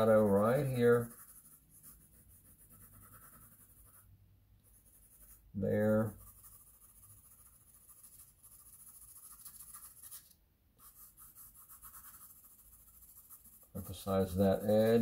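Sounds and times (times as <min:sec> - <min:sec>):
pencil scratching on paper: 0:00.0 - 0:15.0.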